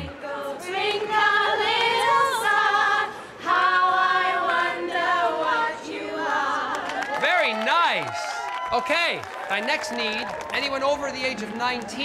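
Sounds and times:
women singing unaccompanied: 0.0s - 7.0s.

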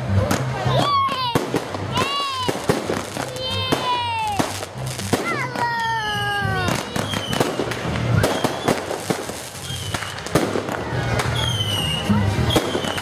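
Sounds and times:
fireworks bangs and crackles: 0.0s - 13.0s
falling firework whistles: 6.8s - 10.3s, 11.2s - 13.0s.

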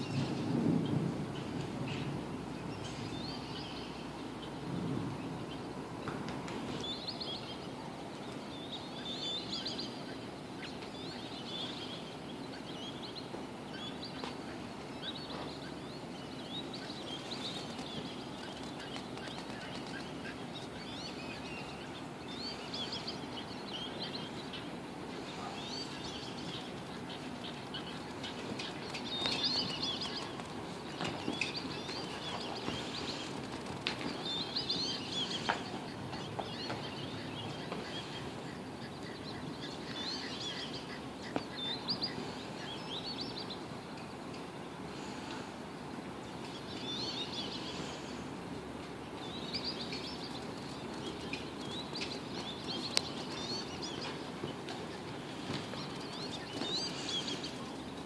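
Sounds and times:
low background rush: 0.0s - 58.0s
small birds chirping: 0.0s - 58.0s.

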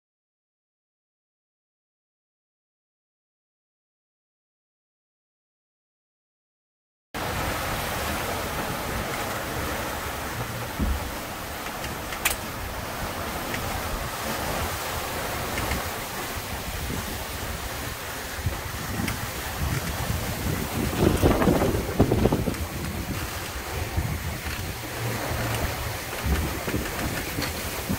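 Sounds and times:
rushing water: 7.2s - 27.9s
wind: 7.2s - 27.9s
low thump: 10.7s - 11.2s.

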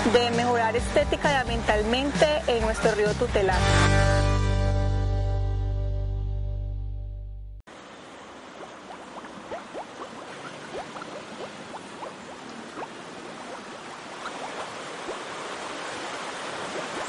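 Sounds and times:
river flowing over stones: 7.7s - 17.0s.

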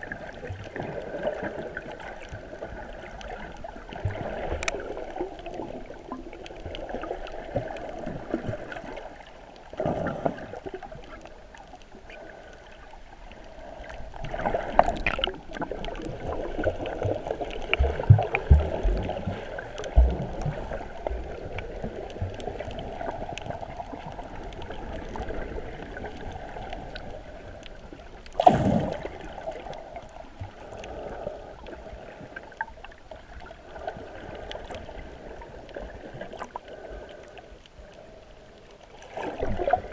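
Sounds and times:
muffled underwater water gurgling: 0.0s - 39.9s
water swooshes: 13.1s - 32.7s.

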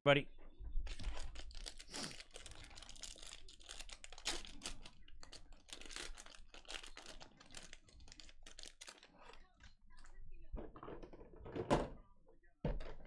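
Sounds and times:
wrapper crinkling and tearing: 0.9s - 9.6s.

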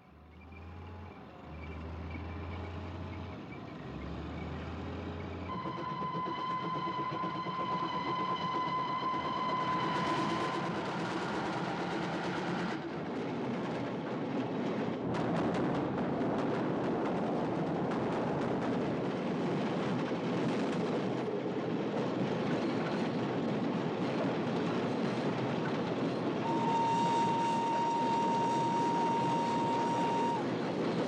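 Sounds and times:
train wheels rattling on track: 5.3s - 31.0s
steady high whistle: 5.5s - 12.8s, 26.4s - 30.6s.

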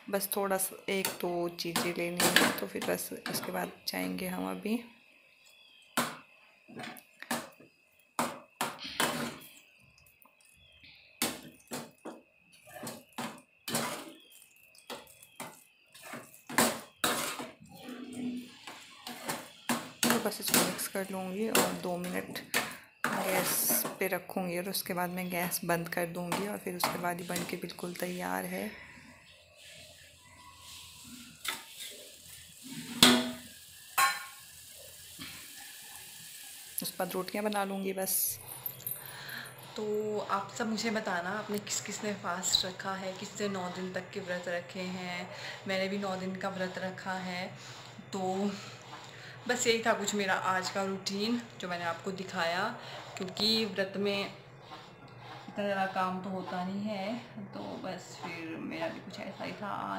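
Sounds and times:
faint sizzling in pan: 0.0s - 25.7s, 26.4s - 38.5s
metal spoon scraping steel pan: 12.6s - 22.3s, 23.0s - 24.0s, 39.4s - 59.9s.

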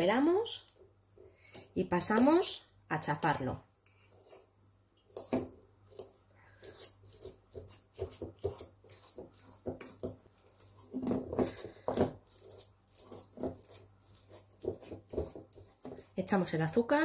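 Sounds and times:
fork clicking on metal bowl: 1.5s - 4.4s, 5.1s - 10.9s
sweet potato squishing: 4.2s - 16.1s.

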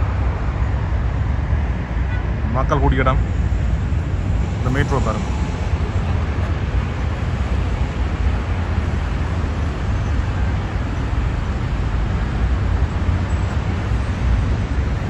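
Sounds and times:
city road traffic: 0.0s - 15.0s.

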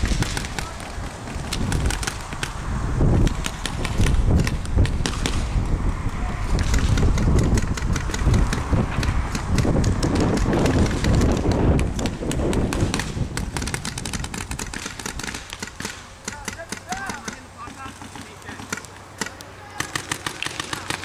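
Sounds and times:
paintball markers firing: 0.0s - 2.6s, 3.2s - 5.5s, 6.5s - 21.0s.

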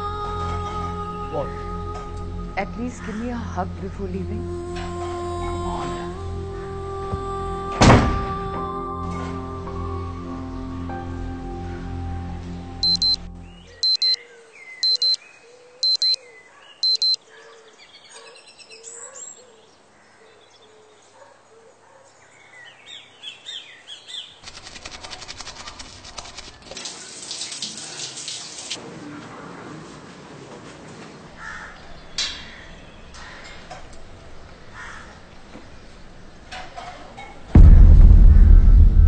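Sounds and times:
alarm clock double beeps: 12.8s - 13.2s, 13.8s - 14.2s, 14.8s - 15.2s, 15.8s - 16.2s, 16.8s - 17.2s
birds chirping: 12.8s - 20.8s.

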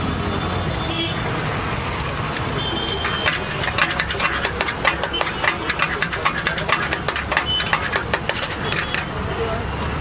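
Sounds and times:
metal spatula scraping wok: 2.9s - 9.2s.

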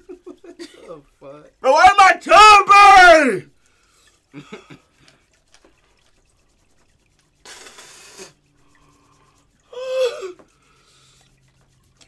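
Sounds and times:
man hissing breath out: 7.4s - 11.2s.

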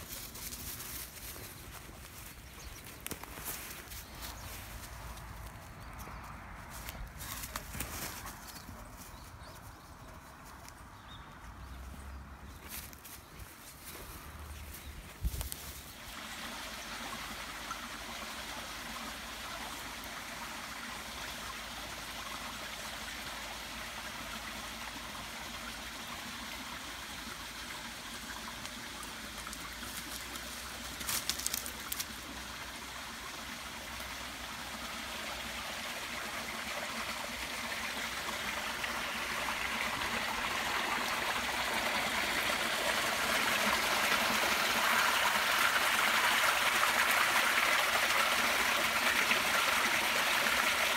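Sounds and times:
stream splashing over stones: 15.8s - 50.9s.

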